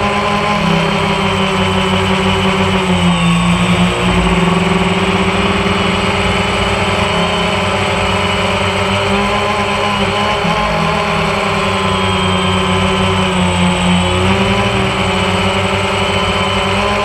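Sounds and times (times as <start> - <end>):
drone propellers humming: 0.0 - 17.0.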